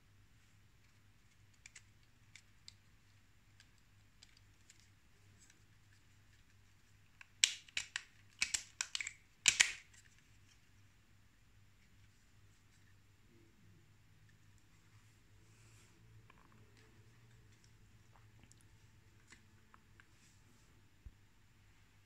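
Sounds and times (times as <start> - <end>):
sharp clicks and taps: 7.2 - 9.9.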